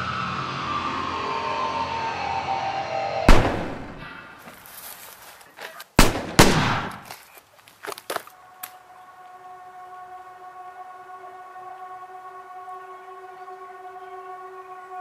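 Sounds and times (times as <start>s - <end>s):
drone of held tones: 0.0s - 4.5s, 8.4s - 15.0s
gunshots echoing: 3.3s - 4.2s, 6.0s - 7.1s.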